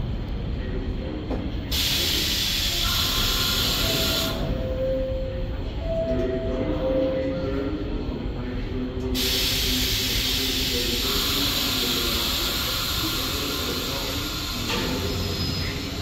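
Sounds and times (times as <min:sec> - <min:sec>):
low train hum: 0:00.0 - 0:16.0
air hissing from train: 0:01.6 - 0:04.6, 0:09.1 - 0:16.0.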